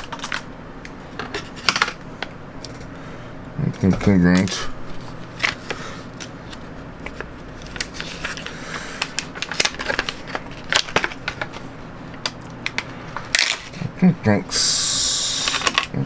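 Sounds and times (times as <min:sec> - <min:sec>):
packaging crinkling and rustling: 0:03.8 - 0:13.8
sharp clicks of packaging: 0:05.4 - 0:11.6.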